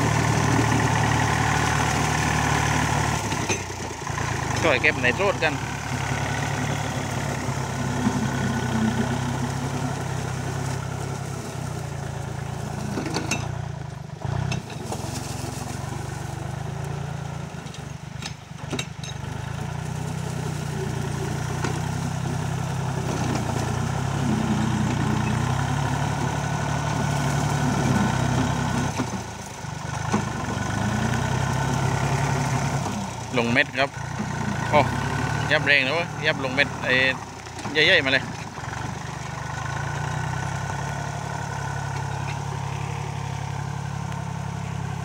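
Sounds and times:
mower cutting tall grass: 0.0 - 45.0
tractor diesel engine running: 0.0 - 45.0.

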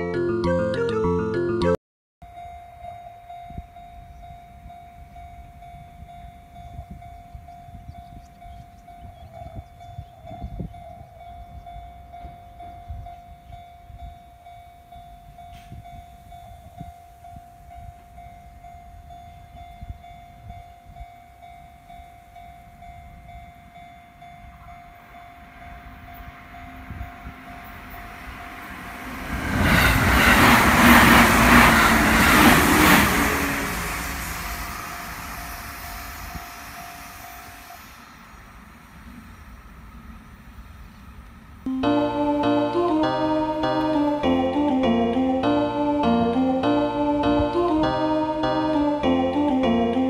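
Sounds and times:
level-crossing warning bell: 2.2 - 38.3, 41.6 - 50.0
train rail noise: 2.2 - 50.0
wind rumbling on microphone: 3.5 - 14.3, 25.7 - 36.9.

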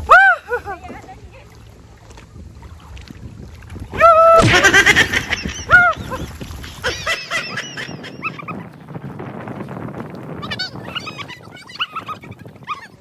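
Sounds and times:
swimming splashes: 0.0 - 13.0
loud splash into water: 2.7 - 7.4.

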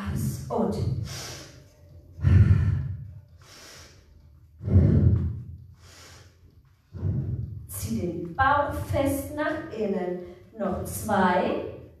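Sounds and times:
woman breathing hard: 1.0 - 7.6.

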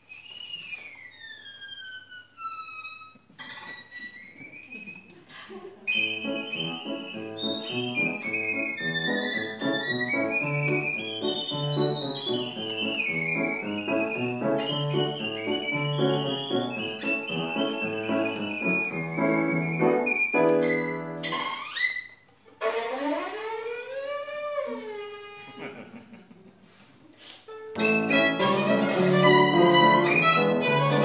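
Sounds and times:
violin melody: 5.9 - 21.6, 22.6 - 25.3, 27.7 - 31.0
piano chords: 6.1 - 21.3, 27.8 - 31.0.

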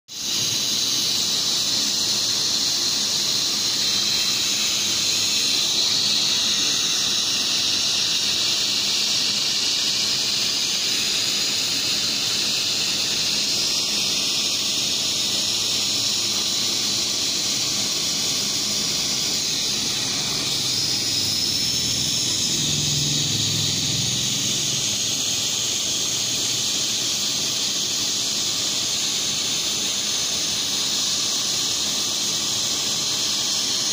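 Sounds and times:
hot-air welding gun hissing: 0.1 - 33.9.

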